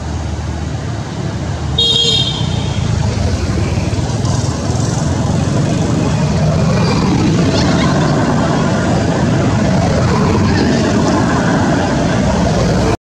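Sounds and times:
motorbikes and scooters passing: 0.0s - 13.0s
short high-pitched horn toot: 1.8s - 2.9s.

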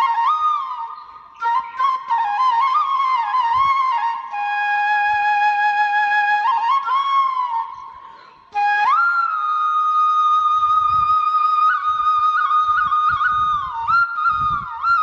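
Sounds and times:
solo flute melody: 0.0s - 15.0s.

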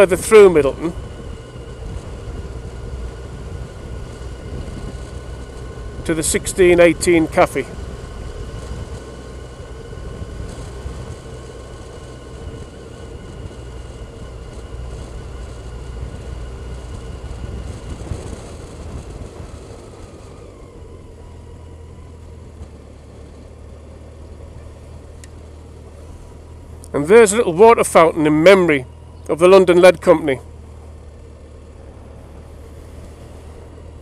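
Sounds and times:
motorcycle engine running: 0.0s - 34.0s
road and wind rumble: 0.0s - 34.0s.

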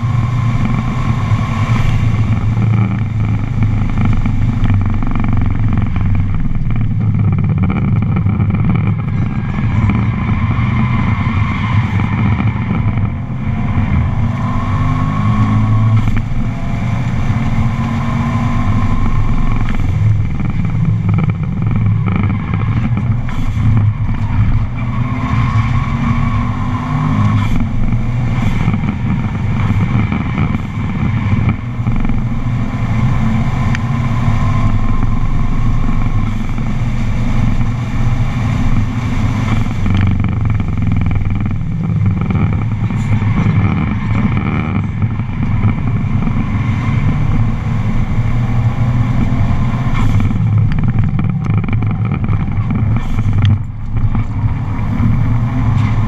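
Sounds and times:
car engine working hard: 0.0s - 56.0s
road and wind noise: 0.0s - 56.0s.

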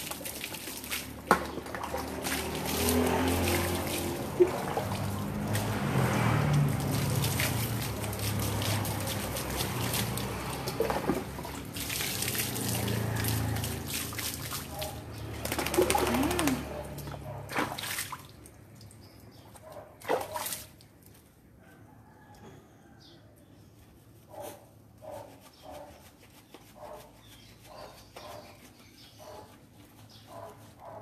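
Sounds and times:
water splashing on concrete: 0.0s - 21.3s.

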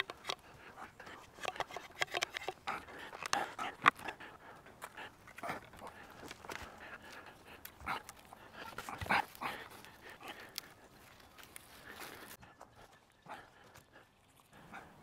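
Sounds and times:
wooden knocks and scrapes: 1.2s - 4.0s.

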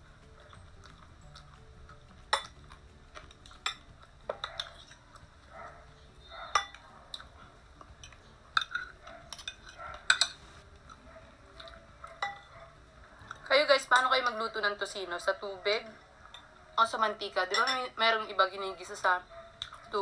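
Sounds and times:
cutlery scraping on ceramic plates: 8.0s - 10.5s, 17.5s - 17.9s.

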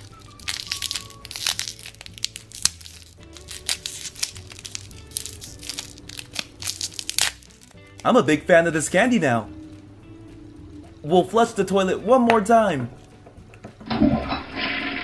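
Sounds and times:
plastic wrapper crinkling: 0.0s - 8.1s
quiet background music: 0.0s - 15.0s.

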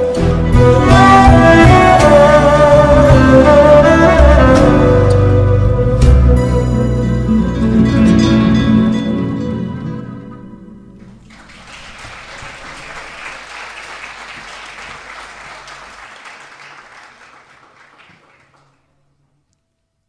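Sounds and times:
applause: 11.1s - 19.0s.

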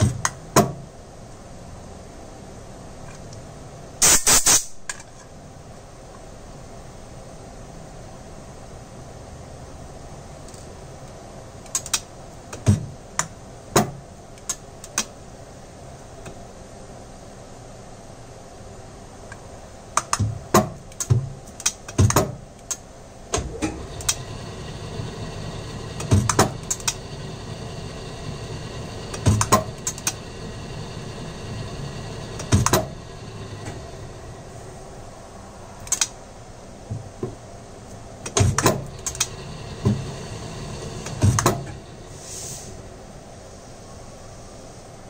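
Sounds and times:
machine hum: 19.4s - 44.3s
lathe levers clicking: 25.8s - 27.1s.

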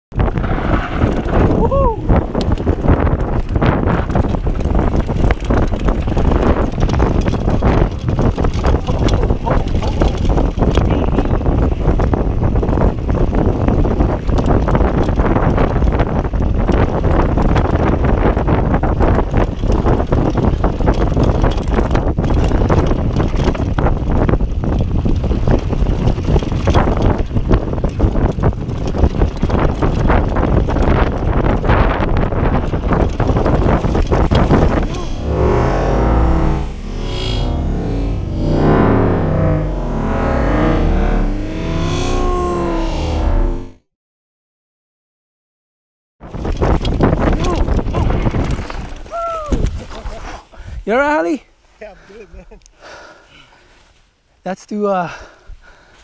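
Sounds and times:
bike rattling and knocking: 0.1s - 39.3s, 46.2s - 50.2s
tyres rumbling on dirt: 0.1s - 43.6s, 46.3s - 50.3s
wind buffeting microphone: 0.1s - 43.8s, 46.2s - 53.8s.

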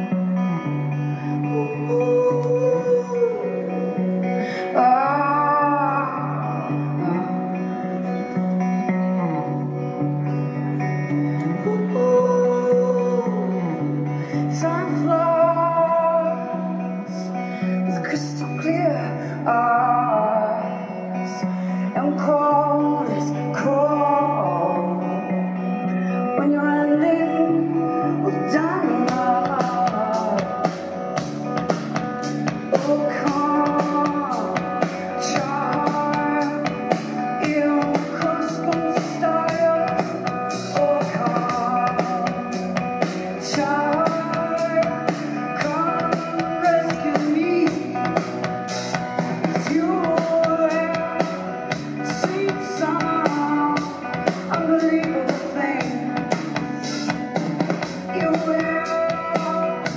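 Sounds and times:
electric guitar: 0.0s - 59.9s
woman singing: 0.9s - 59.9s
drum kit beat: 29.1s - 59.9s.

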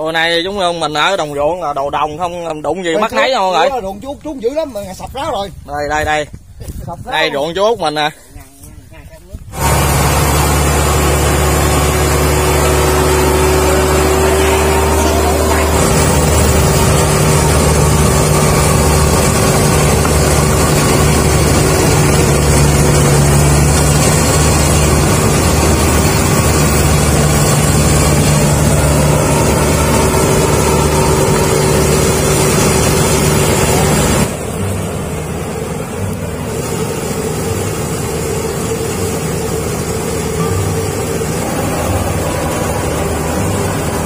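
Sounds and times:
combine harvester engine drone: 9.0s - 44.0s.

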